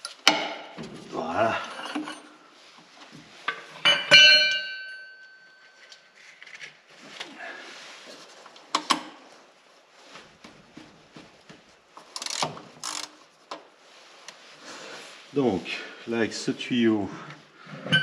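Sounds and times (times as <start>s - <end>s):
metal tools clanking: 1.5s - 2.4s, 3.5s - 6.0s, 17.8s - 18.0s.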